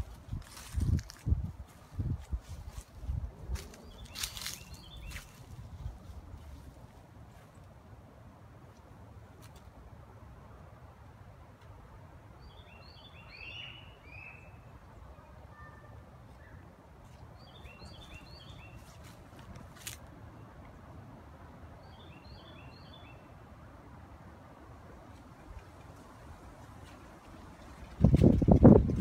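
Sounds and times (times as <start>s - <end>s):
songbird chirping: 0.4s - 6.7s, 12.4s - 20.8s, 21.7s - 23.4s.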